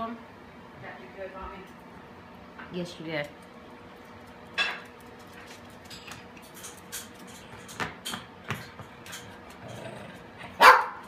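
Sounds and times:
small dog barking: 0:10.6 - 0:11.0.

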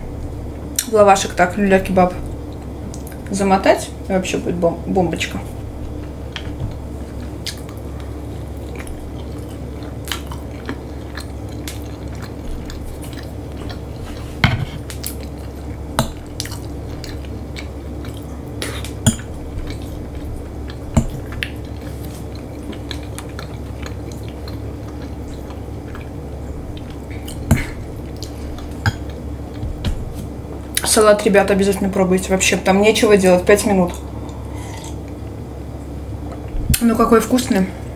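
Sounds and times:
low hum: 0:00.0 - 0:37.9
person chewing food: 0:05.7 - 0:30.8, 0:33.9 - 0:35.5.

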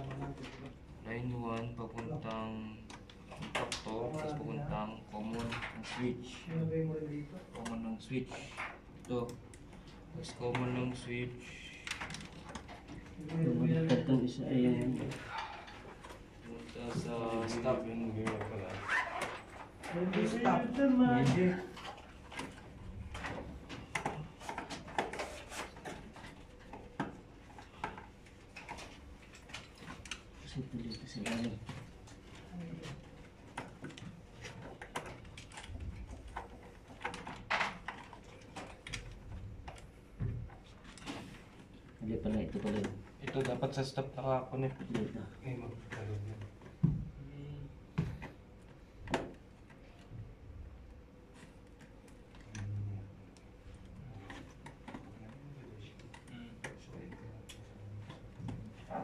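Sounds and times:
clicks taps and rustles of tools: 0:21.8 - 0:30.5.

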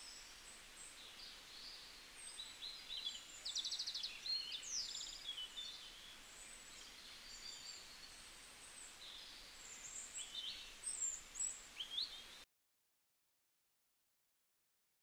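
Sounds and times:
faint steady hiss: 0:00.0 - 0:12.4.

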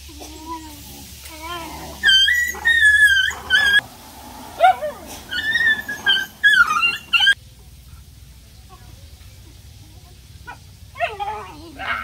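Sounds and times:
puppies whining: 0:01.3 - 0:03.8, 0:04.6 - 0:07.4
puppy yelp: 0:01.4 - 0:03.8, 0:04.6 - 0:07.4.

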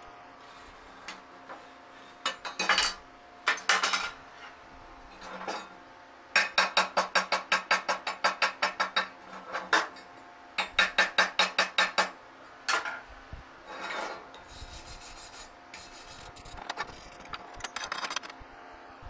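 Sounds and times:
wire brush scrubbing metal: 0:14.4 - 0:17.3.

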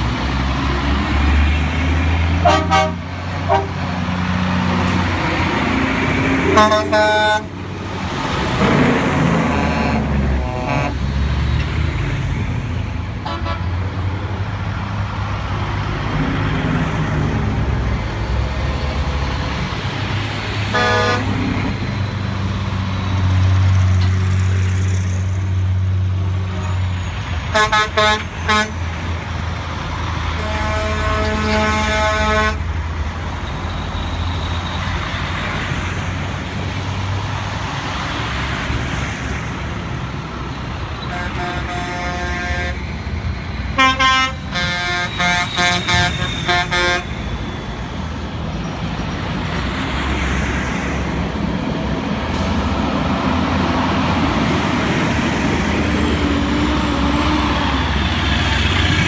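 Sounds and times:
trucks driving past: 0:00.0 - 0:59.0
short horn blasts: 0:02.4 - 0:03.8, 0:06.5 - 0:07.5, 0:09.4 - 0:11.0, 0:20.7 - 0:21.3, 0:27.5 - 0:28.8, 0:30.4 - 0:32.6, 0:41.0 - 0:42.8, 0:43.8 - 0:47.2
truck air horn blasts: 0:02.4 - 0:03.8, 0:06.4 - 0:07.5, 0:08.6 - 0:11.0, 0:13.2 - 0:13.8, 0:20.7 - 0:21.4, 0:26.5 - 0:28.8, 0:30.4 - 0:32.7, 0:41.0 - 0:42.9, 0:43.7 - 0:47.2.

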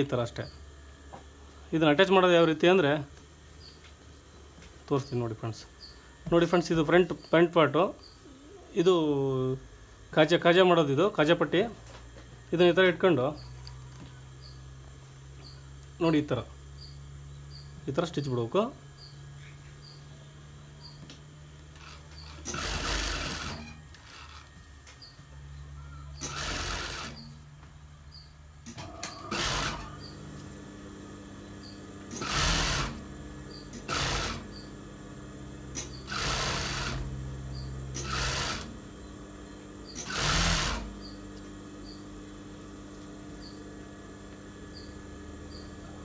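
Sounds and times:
motor humming: 0:00.0 - 0:46.0
sewing machine stitching: 0:21.8 - 0:24.5, 0:26.1 - 0:27.3, 0:28.7 - 0:30.1, 0:32.1 - 0:34.7, 0:35.7 - 0:37.1, 0:37.9 - 0:38.8, 0:39.9 - 0:41.2.

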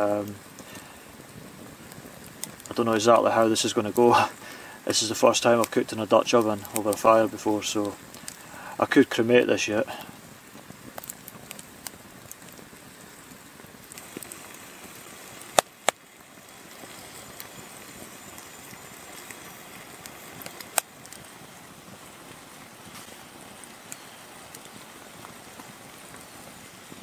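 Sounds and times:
campfire crackling: 0:00.0 - 0:27.0
sharp fire cracks: 0:00.0 - 0:27.0
soft fire hiss: 0:00.0 - 0:27.0.

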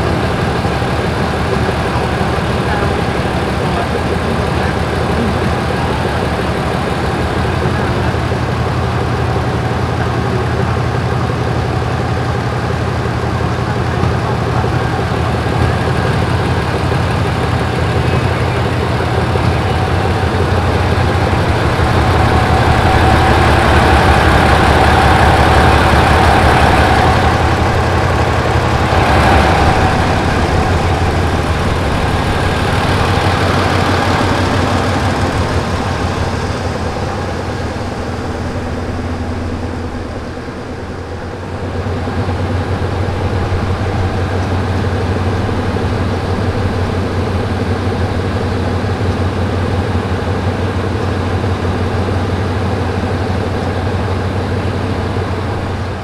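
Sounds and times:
diesel locomotive engine idling: 0:00.0 - 0:56.0.

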